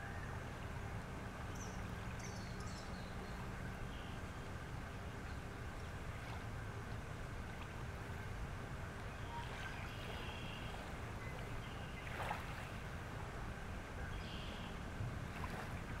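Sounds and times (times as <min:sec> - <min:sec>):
low steady rumble: 0:00.0 - 0:16.0
small waves lapping: 0:00.0 - 0:16.0
water splash swish: 0:09.2 - 0:13.0, 0:15.2 - 0:16.0.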